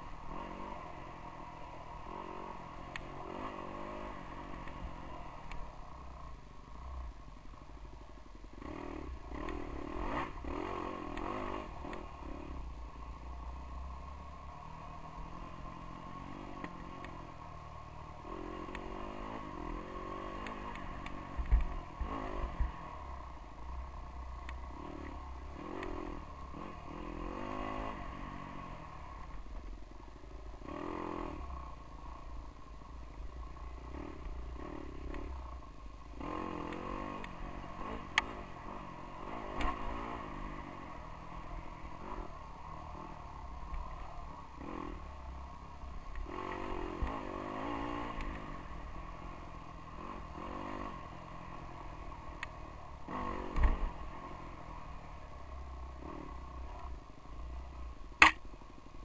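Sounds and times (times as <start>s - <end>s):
dirt bike engine revving: 0.1s - 5.4s, 8.6s - 12.6s, 18.1s - 23.2s, 24.6s - 29.0s, 36.2s - 56.6s.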